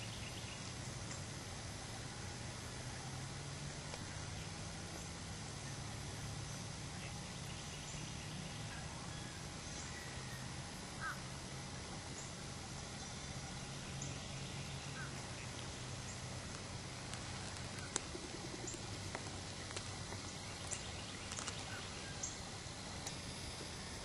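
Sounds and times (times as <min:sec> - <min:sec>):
low hum and hiss: 0:00.0 - 0:24.0
faint bird calls: 0:05.6 - 0:11.4, 0:12.0 - 0:24.0.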